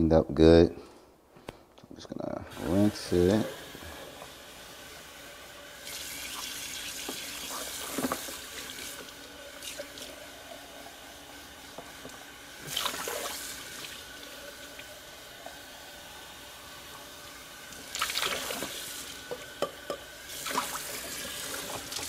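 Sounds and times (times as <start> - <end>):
water splashing into steel sink: 11.9 - 14.9, 17.8 - 22.0.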